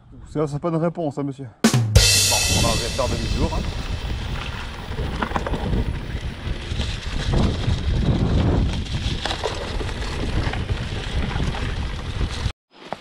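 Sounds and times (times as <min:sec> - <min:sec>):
wind buffeting microphone: 0:02.4 - 0:12.5.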